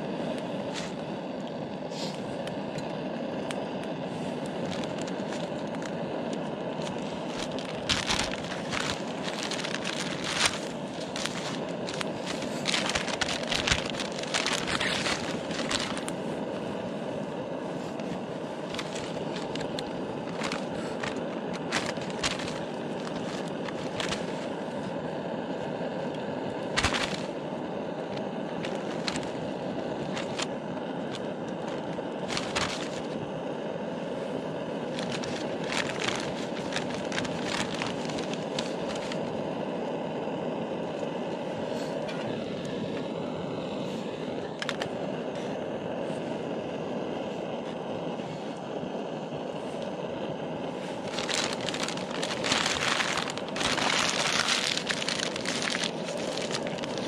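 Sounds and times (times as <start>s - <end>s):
campfire crackling: 0.0s - 41.7s, 42.6s - 57.0s
steady rushing noise: 4.0s - 25.6s.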